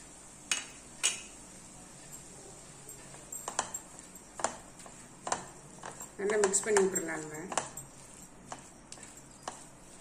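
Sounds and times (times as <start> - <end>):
spatula scraping a pan: 3.5 - 10.0.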